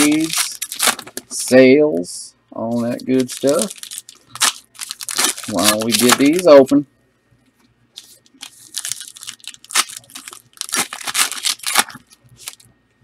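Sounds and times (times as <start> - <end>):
wrappers tearing and crinkling: 0.0 - 1.6, 2.8 - 6.5, 8.0 - 12.7.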